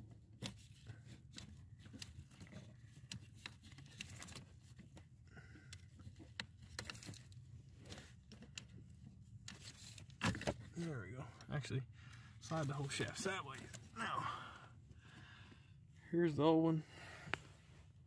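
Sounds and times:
faint clicks and scraping: 0.0 - 14.0.

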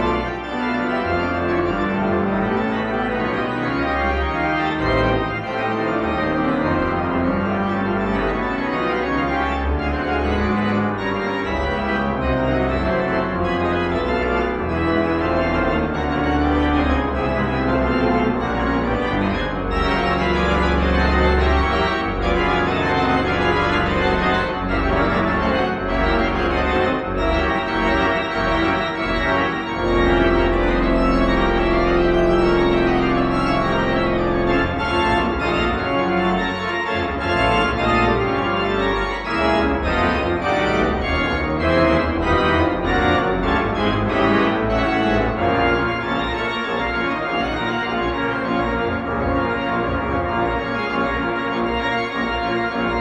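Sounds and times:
church organ playing: 0.0 - 53.0.

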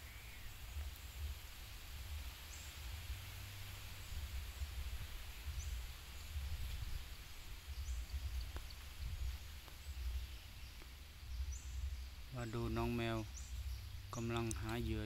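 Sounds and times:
low uneven rumble: 0.0 - 15.0
steady high hiss: 0.0 - 15.0
bird chirps: 4.0 - 15.0.

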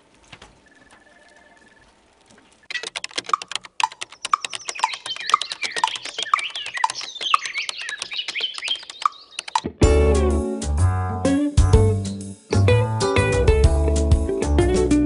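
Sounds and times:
high chirping: 2.7 - 9.8
rapid keyboard typing: 2.7 - 9.8
music: 9.7 - 15.0.

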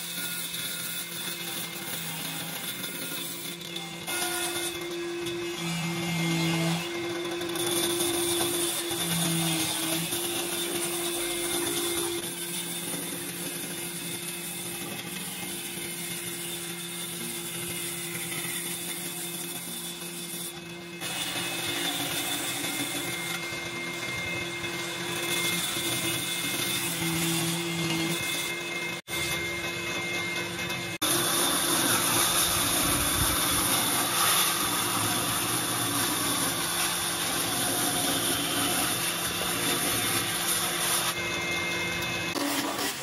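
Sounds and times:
bandsaw cutting wood: 0.0 - 43.0.

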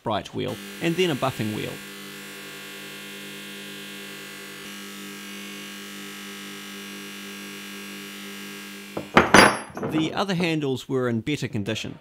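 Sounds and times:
bench grinder motor hum: 0.5 - 9.4.

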